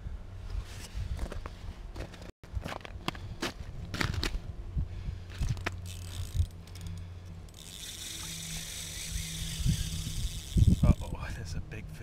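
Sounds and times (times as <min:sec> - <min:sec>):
fishing reel clicking and ratcheting: 0:05.4 - 0:11.2.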